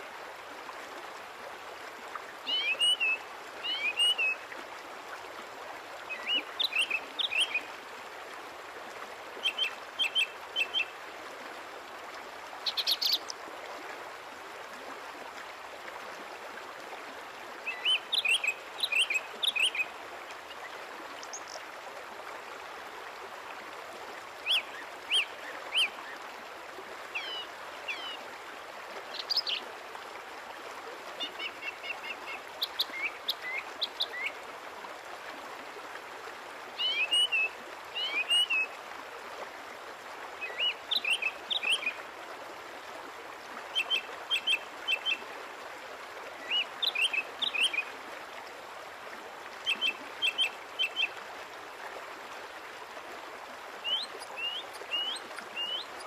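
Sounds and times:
small birds chirping: 12.6s - 13.3s.

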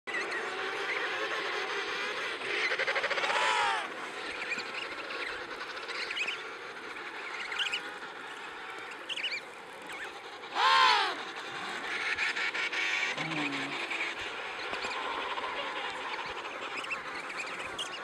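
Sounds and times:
penguin drawn-out call: 0.7s - 4.3s, 10.4s - 16.8s
short high penguin calls: 1.0s - 9.4s, 10.0s - 18.0s.

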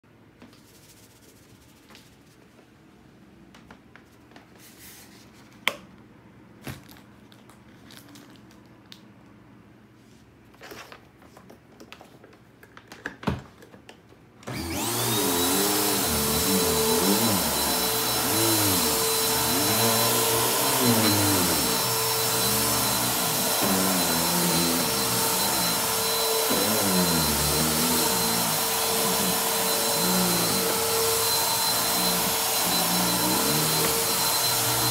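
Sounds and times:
upright vacuum cleaner running: 14.4s - 34.9s.

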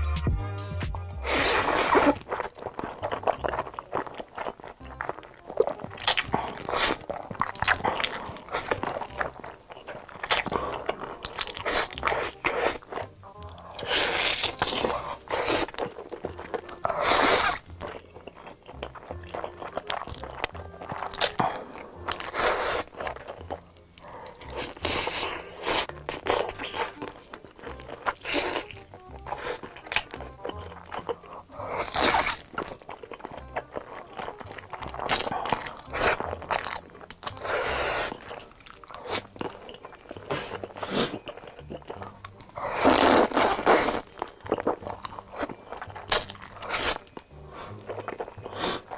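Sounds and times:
crunchy bites and chewing: 1.2s - 48.9s
slurping noodles: 1.2s - 48.9s.

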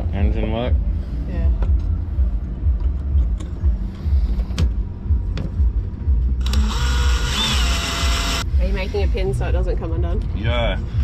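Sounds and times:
low rumble: 0.0s - 11.0s
drill grinding whine: 6.4s - 8.5s.

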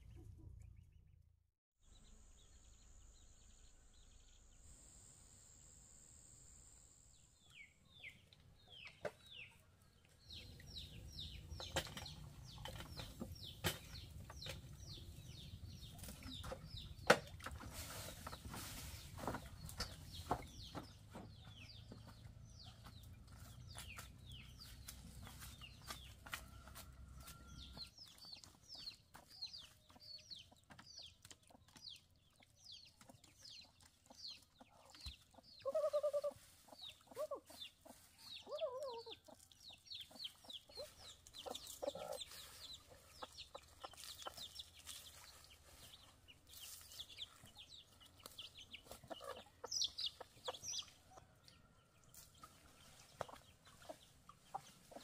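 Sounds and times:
faint high whine: 2.1s - 7.4s
chickens clucking and chirping: 7.4s - 55.0s.

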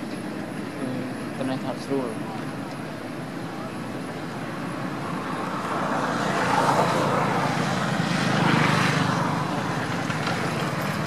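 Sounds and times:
passing motor vehicle engine: 3.5s - 11.0s.

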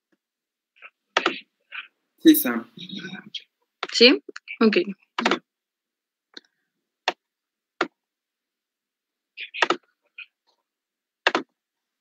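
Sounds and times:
computer mouse clicks: 11.2s - 11.5s.

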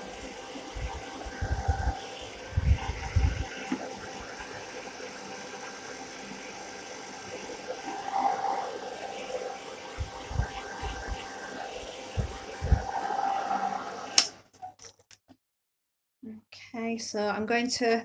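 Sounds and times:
hair dryer running: 0.0s - 14.4s.

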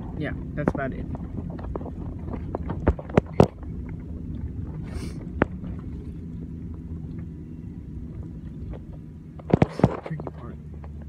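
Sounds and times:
truck engine rumble: 0.0s - 11.0s
sharp knocks and rattles: 0.7s - 3.9s.

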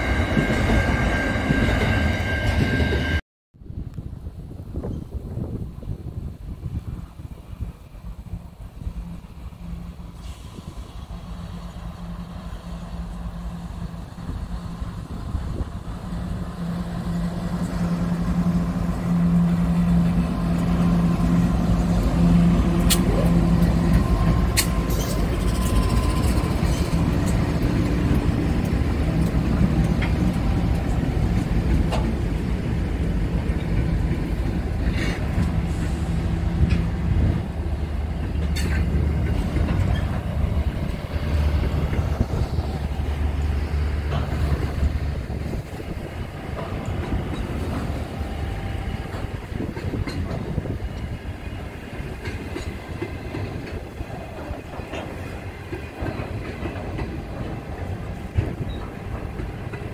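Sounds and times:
train wagons rumbling: 0.0s - 3.2s, 4.7s - 59.9s
diesel locomotive engines droning: 0.0s - 59.9s.

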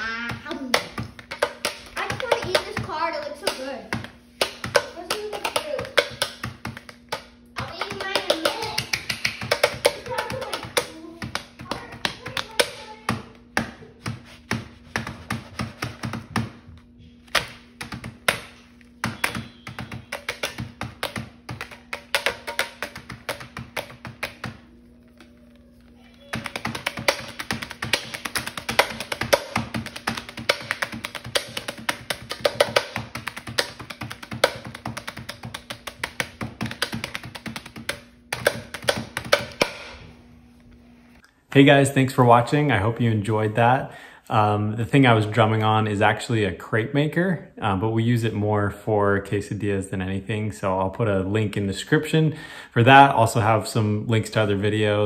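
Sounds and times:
steady hum: 0.0s - 55.0s
spatula tapping on griddle: 0.2s - 16.5s.

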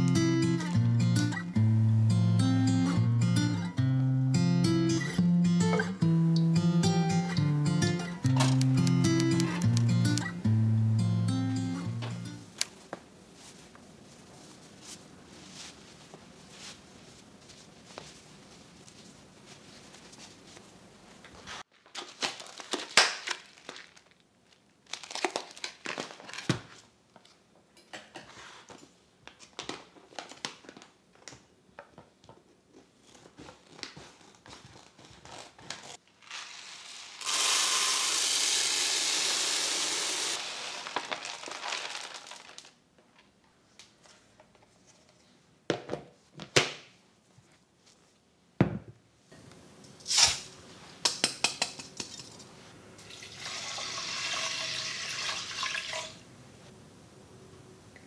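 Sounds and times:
plastic bag crinkling: 21.7s - 26.5s, 39.1s - 42.8s
rice pouring into plastic container: 36.2s - 42.8s, 53.1s - 56.2s.

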